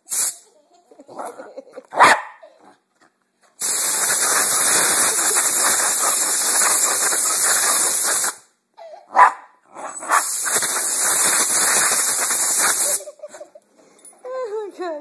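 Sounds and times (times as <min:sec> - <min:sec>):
compressed air hissing: 0:00.0 - 0:00.4, 0:03.6 - 0:08.5, 0:10.1 - 0:13.1
dog barking: 0:01.9 - 0:02.5, 0:09.1 - 0:10.2.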